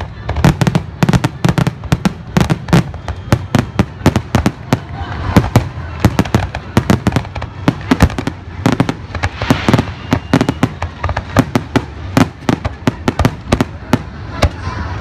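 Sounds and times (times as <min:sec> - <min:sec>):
fireworks bursting with bangs: 0:00.0 - 0:14.8
hissing crackle: 0:04.6 - 0:14.2.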